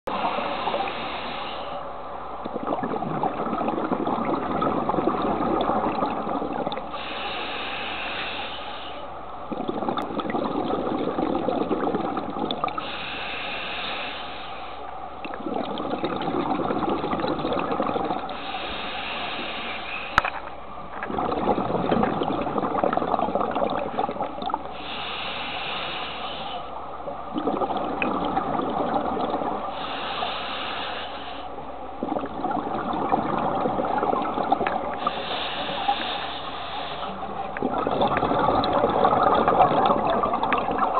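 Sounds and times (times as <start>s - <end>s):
diver breathing through regulator: 0.1s - 1.8s, 6.9s - 9.1s, 12.8s - 14.8s, 18.3s - 20.3s, 24.7s - 26.7s, 29.7s - 31.6s, 35.0s - 37.3s
bubbling exhaust: 2.4s - 8.5s, 9.5s - 14.2s, 15.3s - 20.3s, 21.0s - 26.4s, 27.3s - 31.0s, 31.9s - 40.9s.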